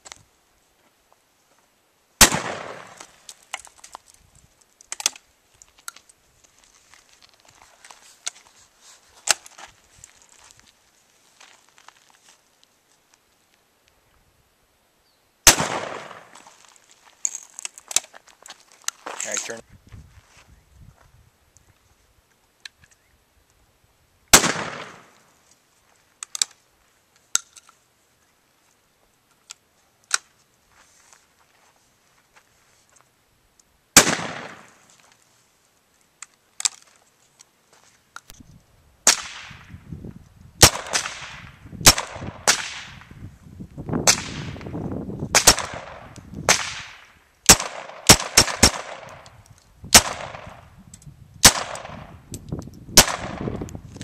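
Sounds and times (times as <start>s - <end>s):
rapid pistol shots: 2.2s - 3.0s, 15.5s - 16.3s, 24.3s - 25.1s, 34.0s - 34.7s, 40.6s - 43.0s, 45.4s - 49.2s, 49.9s - 50.6s, 51.4s - 52.1s, 53.0s - 53.5s
shotgun shots with echo: 2.2s - 3.0s, 15.5s - 16.3s, 24.3s - 25.2s, 34.0s - 34.7s, 40.6s - 43.0s, 45.4s - 49.2s, 49.9s - 50.6s, 51.4s - 52.1s, 53.0s - 53.6s.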